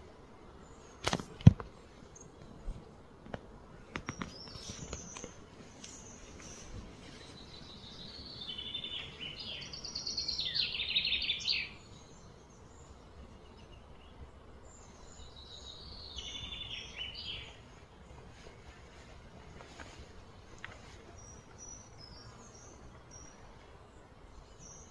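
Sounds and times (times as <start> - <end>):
low background hiss: 0.0 - 24.9.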